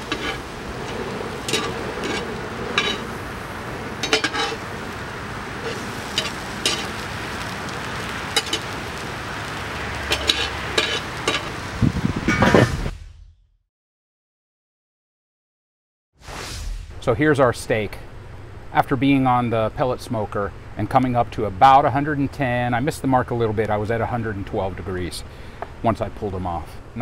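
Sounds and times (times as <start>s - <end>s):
potatoes sizzling on a grill: 0.0s - 12.2s.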